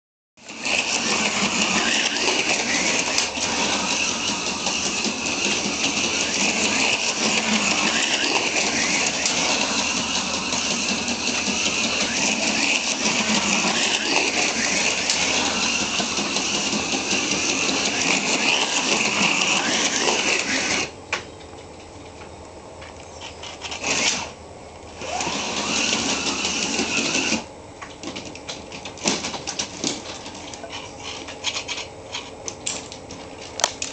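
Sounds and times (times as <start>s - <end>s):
slot car motor whine: 0.4s - 21.0s, 23.6s - 27.5s.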